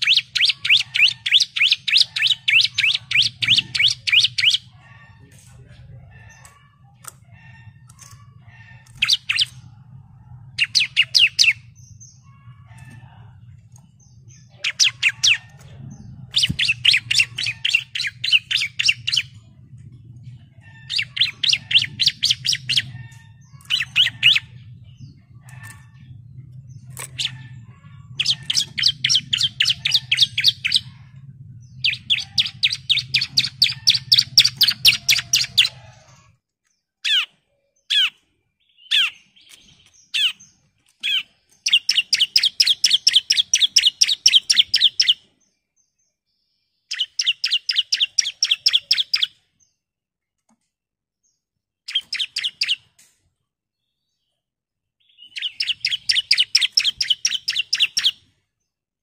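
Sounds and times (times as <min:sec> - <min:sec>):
bird singing rapid high notes: 0:00.0 - 0:04.8, 0:13.6 - 0:19.5, 0:20.7 - 0:35.8, 0:51.9 - 0:52.9, 0:55.1 - 0:58.2
steady low hum: 0:00.0 - 0:36.4.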